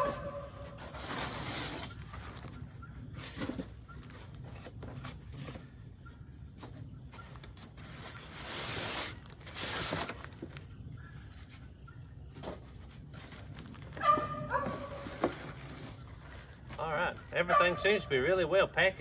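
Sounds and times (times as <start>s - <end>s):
packaging rustling in cardboard box: 0.0s - 5.7s, 6.6s - 10.7s.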